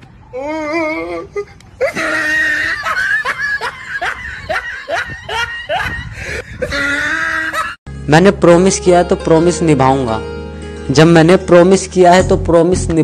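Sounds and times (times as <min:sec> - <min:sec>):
person laughing heartily: 0:01.2 - 0:07.8.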